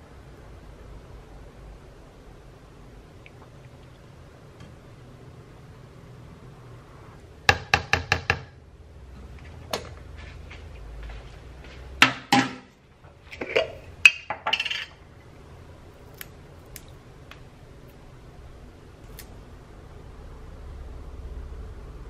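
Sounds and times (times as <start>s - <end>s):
containers and utensils clattering: 13.3s - 15.0s.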